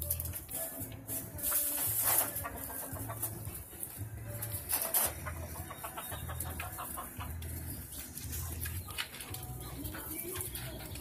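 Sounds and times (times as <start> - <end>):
chickens clucking: 0.0 - 11.0
feathers rustling: 0.0 - 11.0.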